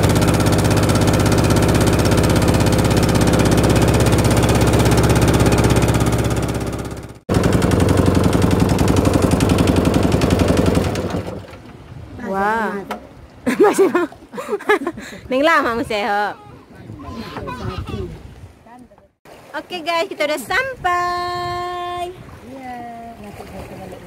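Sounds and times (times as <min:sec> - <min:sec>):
boat engine running: 0:00.0 - 0:14.3.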